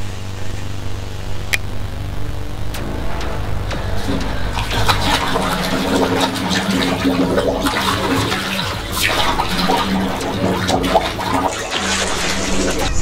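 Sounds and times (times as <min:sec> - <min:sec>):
water splashing in a bathtub: 0:03.7 - 0:13.0.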